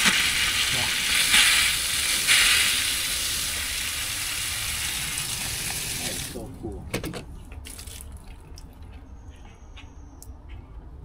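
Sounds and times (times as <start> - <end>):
water running from hydrant hose: 0.0 - 6.5, 7.6 - 8.2.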